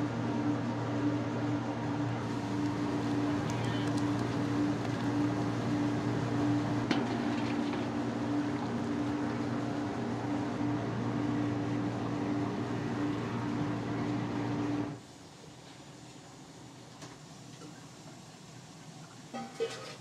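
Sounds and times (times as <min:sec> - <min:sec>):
machine hum: 0:00.0 - 0:15.0.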